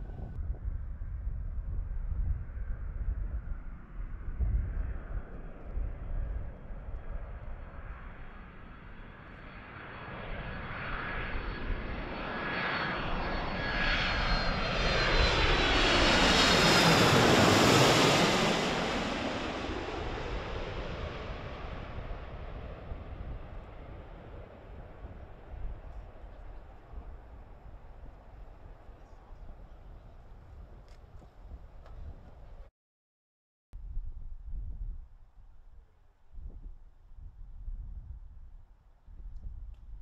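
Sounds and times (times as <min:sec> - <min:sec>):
jet engines flying overhead: 0:00.0 - 0:32.7.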